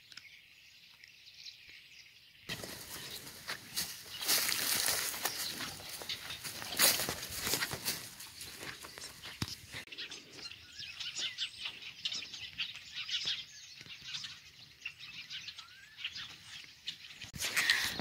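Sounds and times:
small birds chirping: 0.0s - 18.0s
cattle crunching hay: 2.5s - 9.2s.

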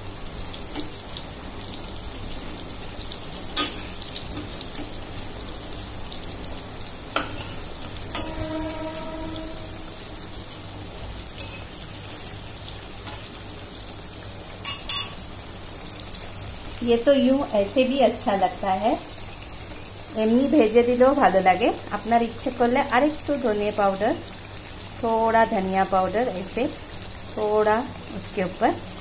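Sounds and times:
food sizzling in hot oil: 0.0s - 29.0s
metal spatula scraping pan: 7.2s - 10.3s.

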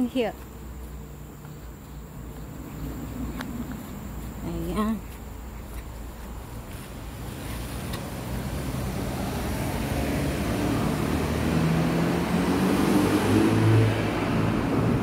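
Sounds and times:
cars driving through underpass: 6.0s - 15.0s.

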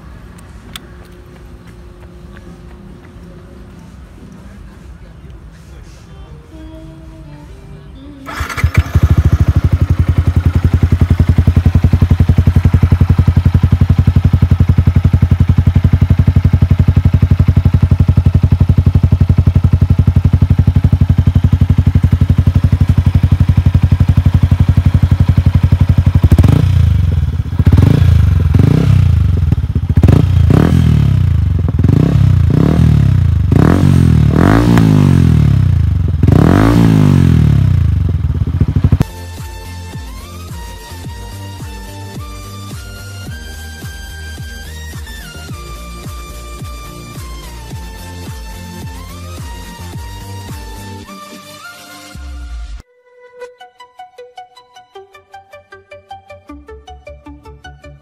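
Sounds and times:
motorcycle engine idling and revving: 8.0s - 51.4s.

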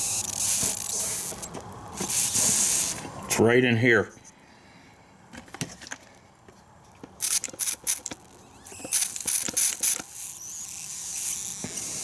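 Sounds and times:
spray bottle squirting: 0.0s - 3.0s, 7.2s - 10.2s.

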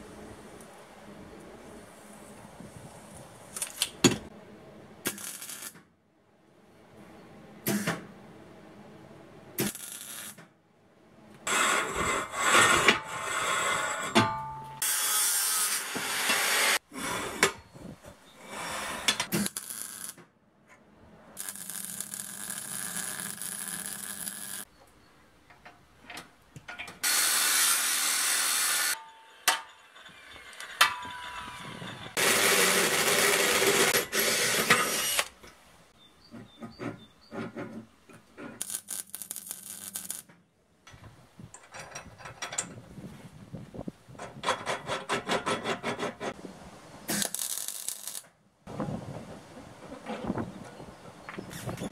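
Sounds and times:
knocks and clicks of steel parts: 14.1s - 14.8s, 25.4s - 27.0s, 40.2s - 42.8s
welder hissing: 21.4s - 24.6s, 27.0s - 29.0s.

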